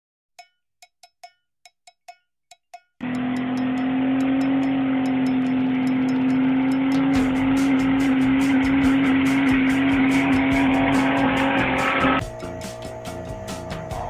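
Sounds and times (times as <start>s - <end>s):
light metallic pings: 0.4s - 7.2s
tyres spinning: 3.0s - 13.0s
car engine revving: 3.0s - 14.0s.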